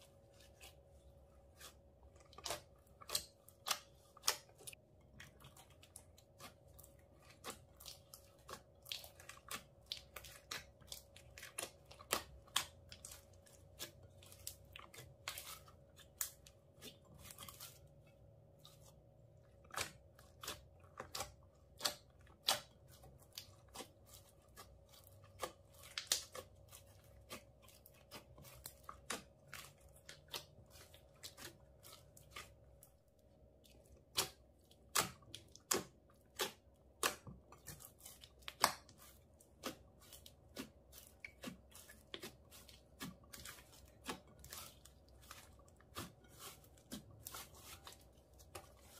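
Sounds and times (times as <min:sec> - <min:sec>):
slime squishing and popping: 0:34.0 - 0:48.9.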